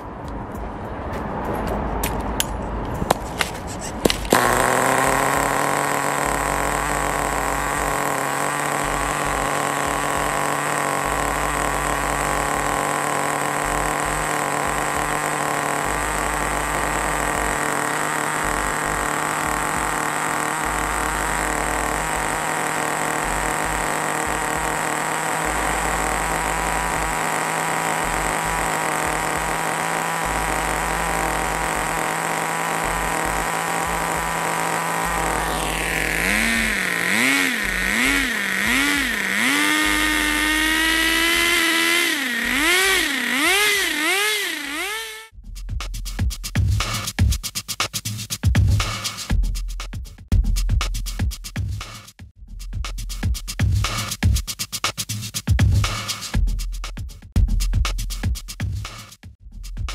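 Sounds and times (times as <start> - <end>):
small two-stroke engine revving: 3.1 - 45.3.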